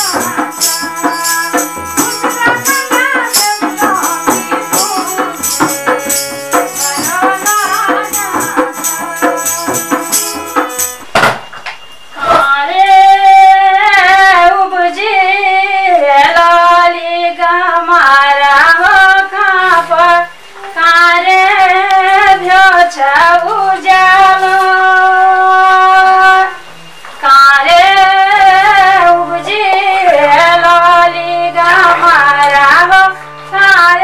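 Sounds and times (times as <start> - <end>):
woman singing solo: 0.0 - 5.7.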